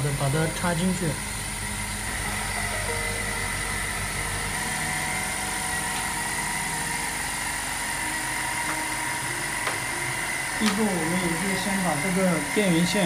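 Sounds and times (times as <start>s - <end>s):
air compressor running: 0.0s - 13.0s.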